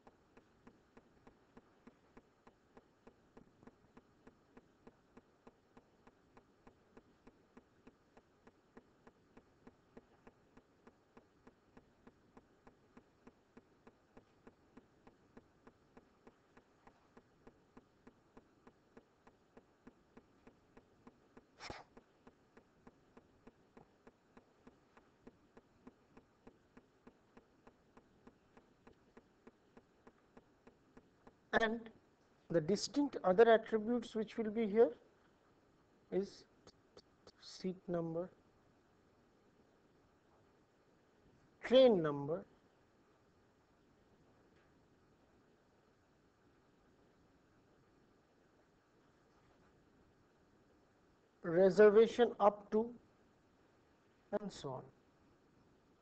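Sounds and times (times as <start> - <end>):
faint regular ticking: 0.0 - 56.0
faint steady hum: 0.0 - 56.0.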